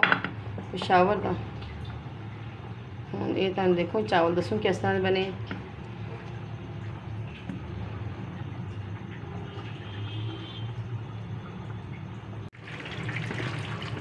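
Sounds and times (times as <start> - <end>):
low mechanical hum: 0.0 - 14.0
running tap water: 8.8 - 14.0.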